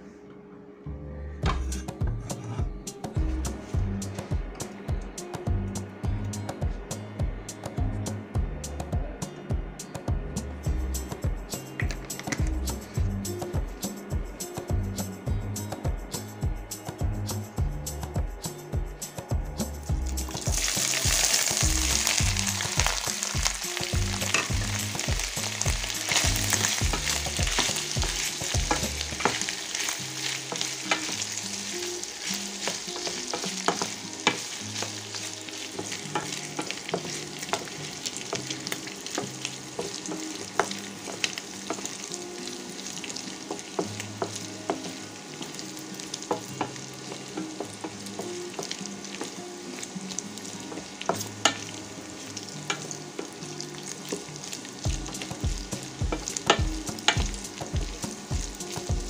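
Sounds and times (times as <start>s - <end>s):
food sizzling in hot oil: 19.8s - 59.0s
wooden spatula tapping and scraping pan: 32.3s - 42.0s, 43.5s - 45.6s, 46.2s - 49.4s.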